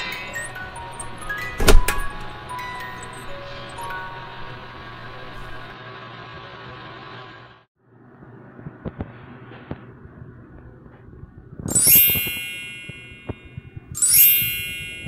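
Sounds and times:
bright bell-like chime: 0:00.0 - 0:05.7, 0:11.7 - 0:15.0.

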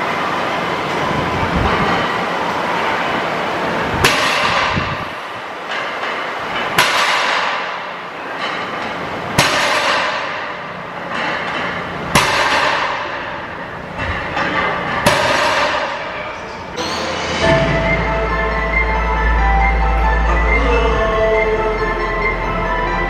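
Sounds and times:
weight plates rattling: 0:04.0 - 0:17.4.

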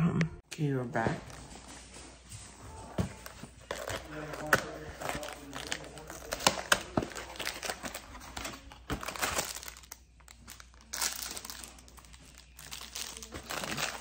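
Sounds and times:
foil wrapper crinkling: 0:03.6 - 0:14.0.

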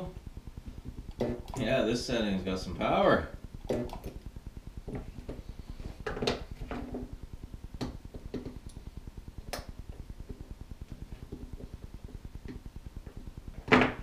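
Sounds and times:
low pulsing hum: 0:00.0 - 0:14.0.

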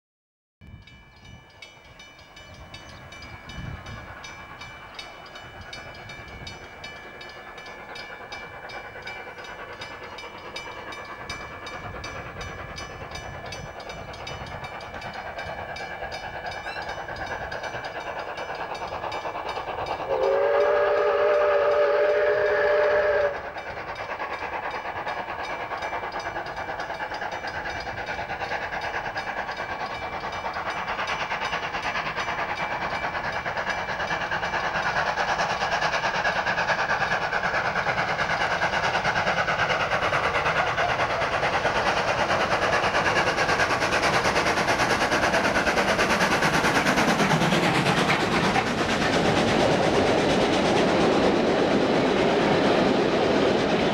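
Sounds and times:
steam locomotive exhaust: 0:00.6 - 0:53.9
multi-note steam whistle: 0:19.9 - 0:23.8.

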